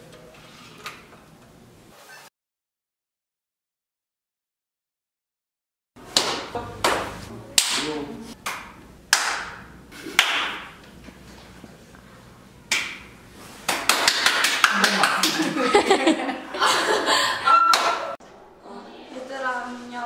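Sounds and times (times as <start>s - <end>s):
echoing hand claps: 6.2s - 10.8s, 13.7s - 15.6s, 17.7s - 18.2s.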